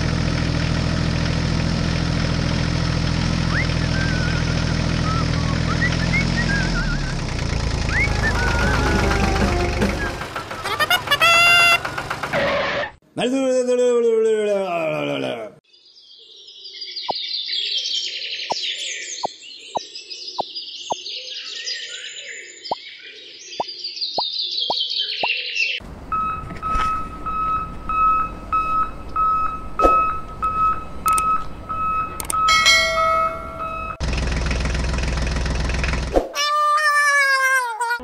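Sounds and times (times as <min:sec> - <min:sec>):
birds chirping: 0:03.4 - 0:11.6, 0:15.7 - 0:25.8.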